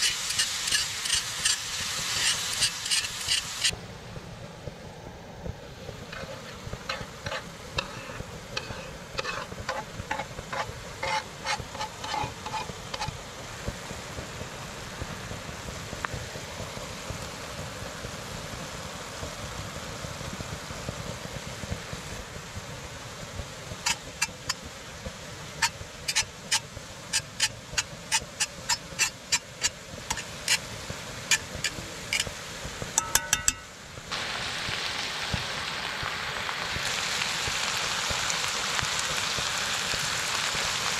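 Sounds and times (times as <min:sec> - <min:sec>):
metal utensil clicking on pan: 0:00.0 - 0:01.6, 0:06.1 - 0:13.2, 0:25.6 - 0:30.6, 0:31.3 - 0:32.3, 0:33.0 - 0:33.7
meat sizzling in a skillet: 0:00.0 - 0:03.7, 0:06.0 - 0:14.8, 0:15.5 - 0:40.9.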